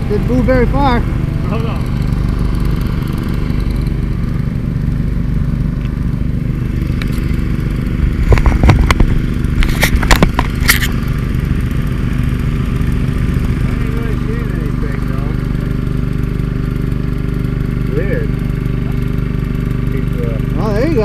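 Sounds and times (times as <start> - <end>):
small gas engine and pump running: 0.0 - 21.0
stones and gravel clattering: 8.2 - 11.0.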